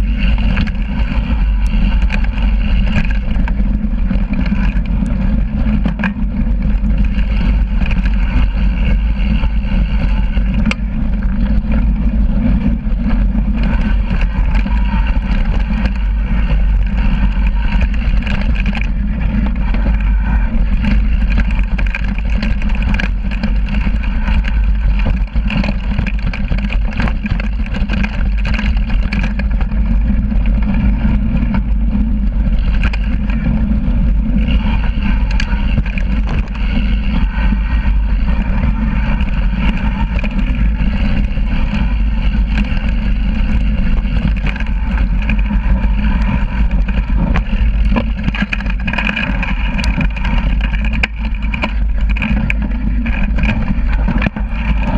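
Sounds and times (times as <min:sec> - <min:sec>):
bike rattles and clicks: 0:00.0 - 0:54.9
bike tyres rolling on rocky dirt: 0:00.0 - 0:54.9
wind buffeting camera: 0:00.0 - 0:54.9.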